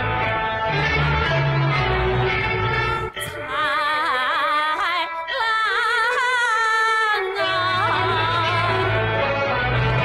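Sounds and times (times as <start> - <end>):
instrumental accompaniment: 0.0 - 10.0
opera singing with vibrato: 3.2 - 9.2.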